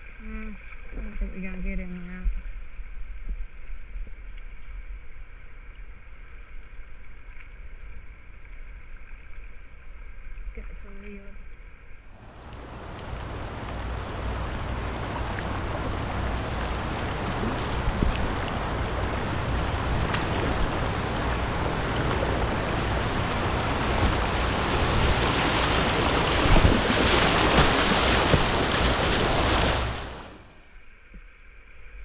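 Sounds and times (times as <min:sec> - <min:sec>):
river water splashing: 0:12.0 - 0:31.1
wind rumbling on microphone: 0:12.2 - 0:30.5.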